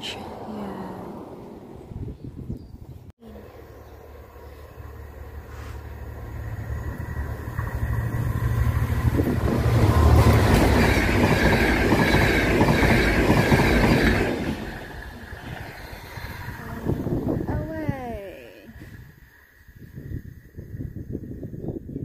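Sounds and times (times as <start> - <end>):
train passing with rumble: 0.0 - 22.0
wheels clattering on rails: 6.8 - 17.4.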